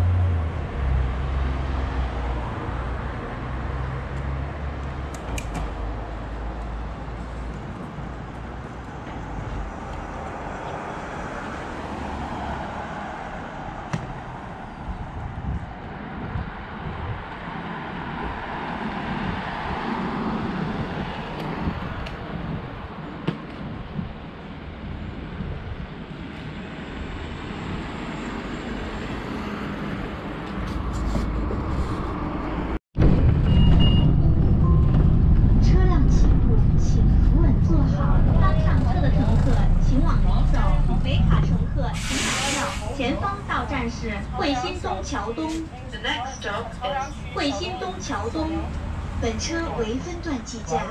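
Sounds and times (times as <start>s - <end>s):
bus rumbling inside cabin: 0.0s - 50.9s
city street traffic: 0.0s - 50.9s
short high beep: 33.4s - 34.9s
vehicle passing by: 34.4s - 45.6s.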